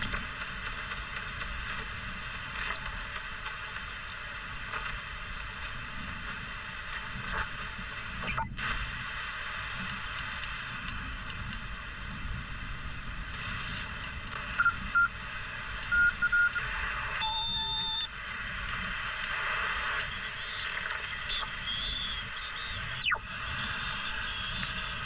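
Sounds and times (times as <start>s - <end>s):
radio static hiss: 0.0s - 25.0s
two-tone beep: 14.6s - 15.1s, 15.8s - 16.6s, 17.2s - 18.1s
short steady tones: 15.8s - 18.1s
whistle falling in pitch: 17.2s - 18.1s.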